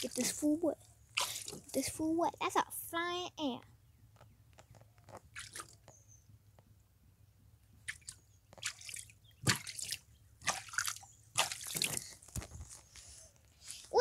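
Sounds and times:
water splashing and dripping: 0.0s - 0.6s, 1.2s - 1.8s, 5.3s - 5.8s, 7.9s - 12.4s.

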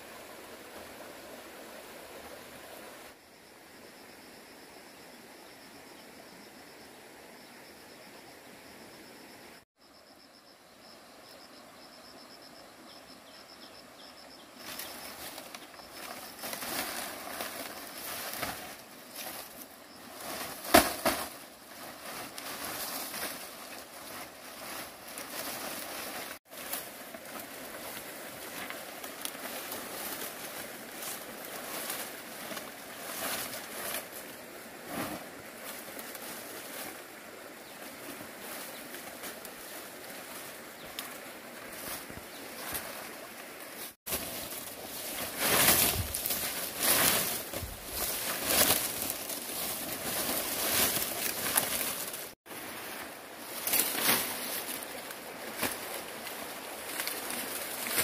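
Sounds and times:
outdoor hiss: 0.0s - 5.5s
hands rustling and scraping: 38.1s - 58.0s.

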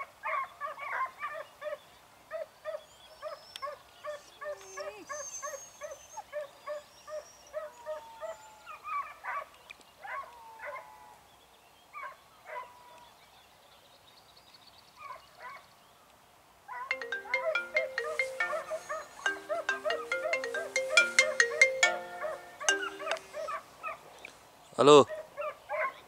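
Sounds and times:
phone ringtone: 16.9s - 23.5s.

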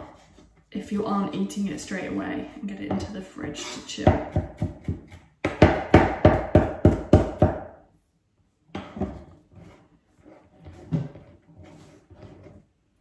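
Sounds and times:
knife chopping on wooden board: 4.1s - 7.7s.

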